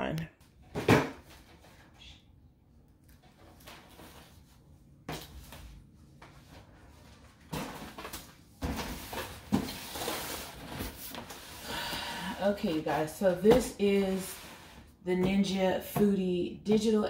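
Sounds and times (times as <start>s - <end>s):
cardboard rustling and scraping: 3.2s - 11.6s.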